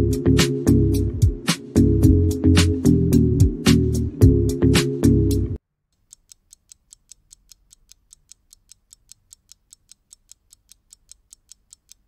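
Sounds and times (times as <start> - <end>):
rapid clock-like ticking: 6.0 - 12.0.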